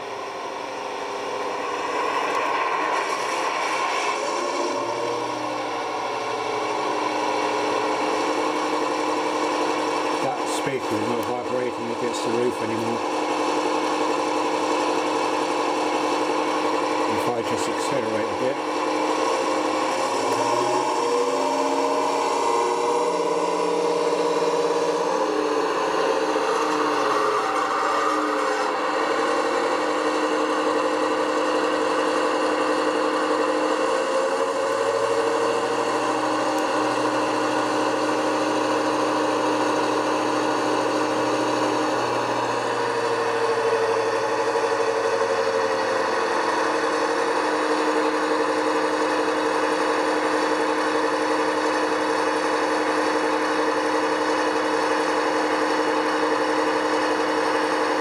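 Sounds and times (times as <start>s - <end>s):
diesel engine idling from loudspeaker: 5.7s - 14.1s, 15.7s - 33.8s.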